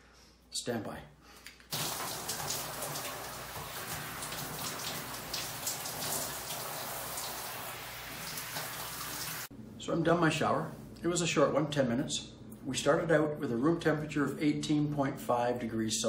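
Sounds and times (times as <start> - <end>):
shower water spraying: 1.7 - 9.5.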